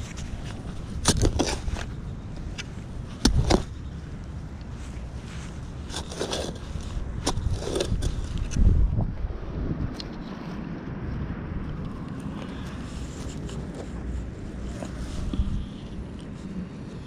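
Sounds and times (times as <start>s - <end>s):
digging tool chopping soil: 0.0s - 2.0s, 2.6s - 3.8s, 5.8s - 8.6s
low steady rumble: 0.0s - 17.0s.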